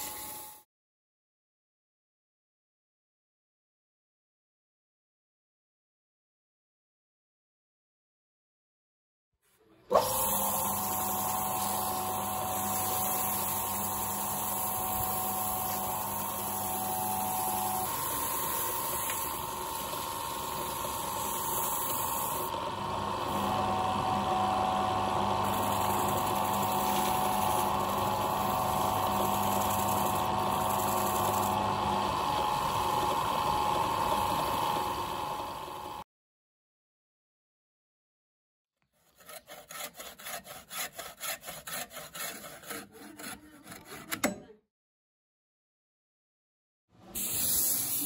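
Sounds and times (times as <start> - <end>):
wood lathe motor running: 9.9 - 36.0, 39.2 - 44.1
sandpaper rubbing spinning wood: 10.2 - 22.5, 25.2 - 31.6, 38.9 - 44.2.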